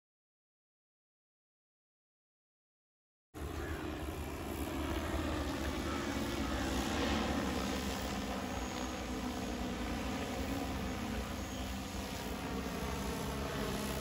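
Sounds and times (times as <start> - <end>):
drone propellers humming: 3.4 - 14.0.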